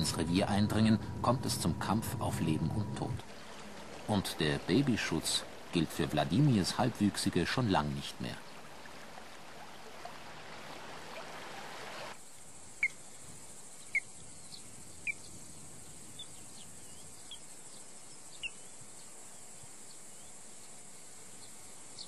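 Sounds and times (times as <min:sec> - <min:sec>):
running water: 0:00.0 - 0:14.4
insect chirring: 0:12.2 - 0:22.0
bird chirps: 0:16.2 - 0:18.7.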